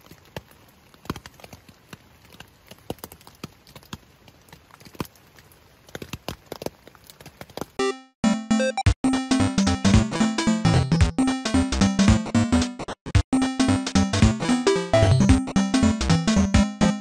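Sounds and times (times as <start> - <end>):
water drops tapping on tent: 0.0 - 7.7
music: 7.8 - 17.0.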